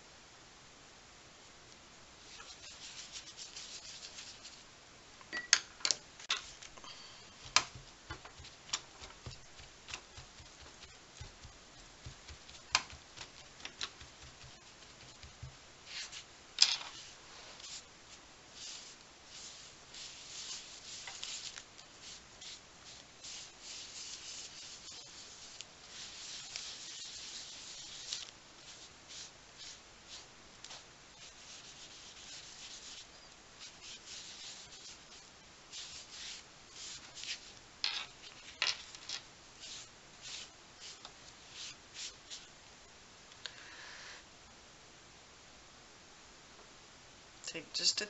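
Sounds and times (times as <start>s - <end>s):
rubbing strokes on wet paper: 2.3s - 4.7s, 7.4s - 16.3s, 16.9s - 37.6s, 39.6s - 42.5s.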